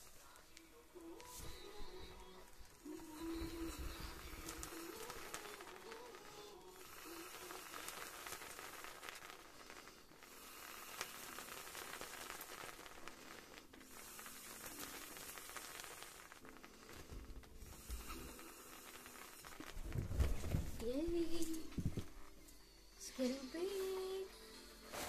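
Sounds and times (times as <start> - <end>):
air hissing into balloon: 0.0 - 25.0.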